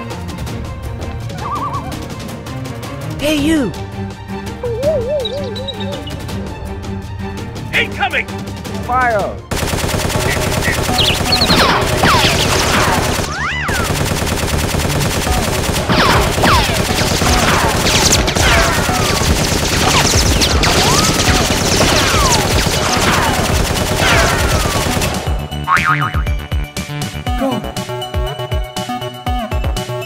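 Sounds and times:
automatic gunfire: 9.5s - 25.4s.

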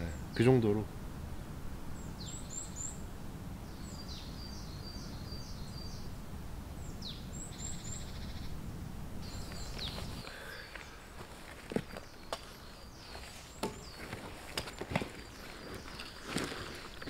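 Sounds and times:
songbirds singing: 0.0s - 1.0s, 1.8s - 17.0s
bird trill: 6.8s - 8.6s.

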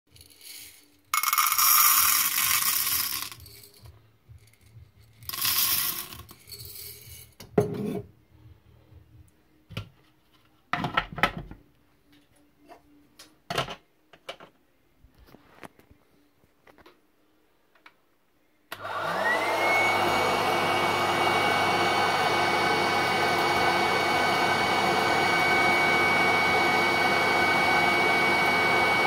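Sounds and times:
popcorn kernels rattling: 0.1s - 7.4s.

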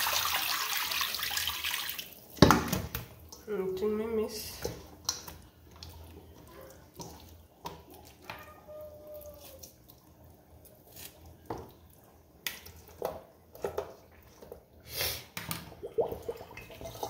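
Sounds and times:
water dripping and splashing: 4.5s - 8.6s, 15.4s - 17.0s.

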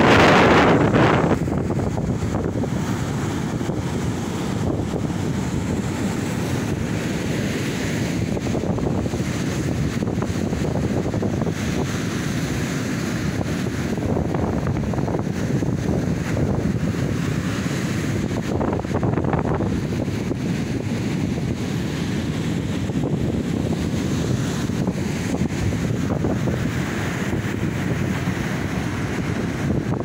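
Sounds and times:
surf breaking on beach: 0.0s - 30.0s
wind on microphone: 0.0s - 30.0s.

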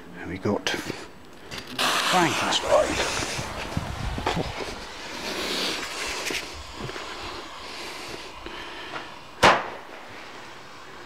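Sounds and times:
low rustling hiss: 0.0s - 11.0s
firework bang: 1.8s - 4.9s, 9.0s - 10.1s.

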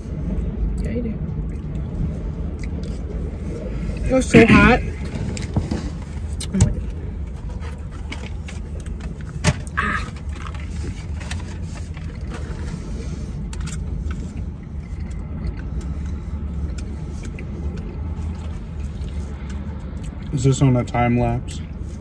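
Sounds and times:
car cabin rumble: 0.9s - 15.6s.

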